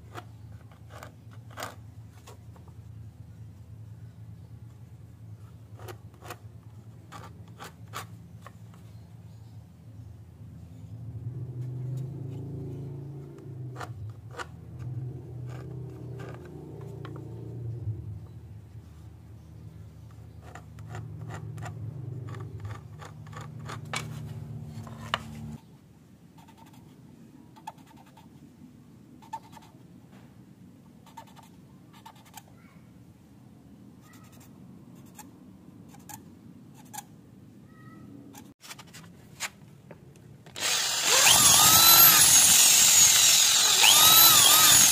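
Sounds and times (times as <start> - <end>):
marker pen scratching on wood: 0.1 - 1.8, 26.4 - 26.9, 27.6 - 28.3, 29.2 - 29.8, 31.0 - 32.5.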